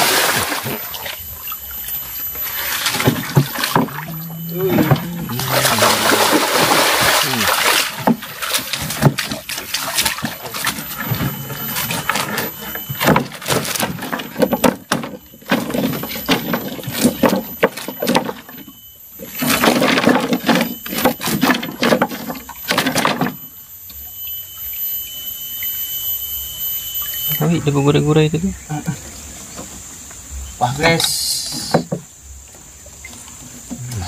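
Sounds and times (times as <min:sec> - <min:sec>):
fish thrashing in a trap: 0:00.0 - 0:23.5
water splashing and sloshing: 0:00.0 - 0:34.0.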